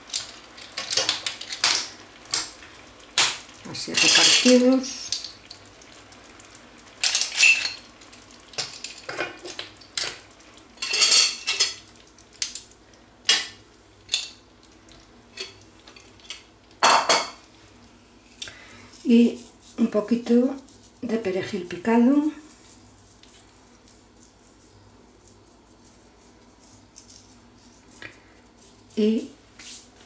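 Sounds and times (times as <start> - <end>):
shells clicking in a frying pan: 0.0 - 5.7, 6.3 - 14.8.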